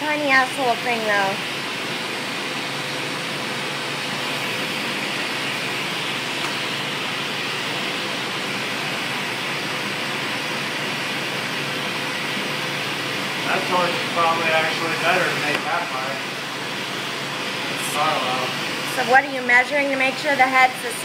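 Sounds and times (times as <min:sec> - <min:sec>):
torch flame hissing: 0:00.0 - 0:21.0.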